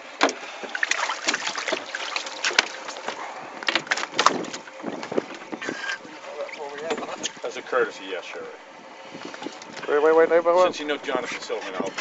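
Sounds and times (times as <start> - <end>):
knocks and thumps on boat deck: 0.1 - 6.0, 6.8 - 7.4.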